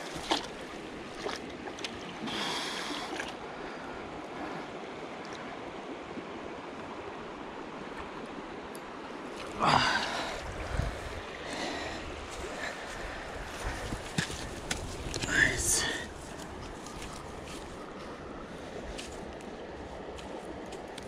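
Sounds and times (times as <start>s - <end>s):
fish splashing: 0.0s - 3.4s
creek water running over stones: 0.0s - 21.0s.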